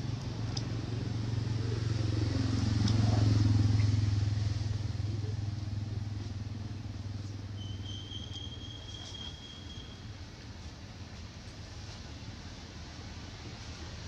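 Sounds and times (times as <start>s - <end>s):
vehicle engine passing by: 0.0s - 10.3s.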